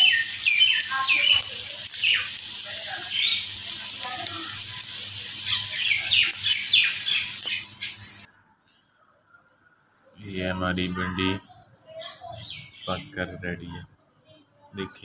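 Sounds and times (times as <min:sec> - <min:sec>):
falling bird chirps: 0:00.0 - 0:08.3
vegetables sizzling in oil: 0:00.0 - 0:08.3.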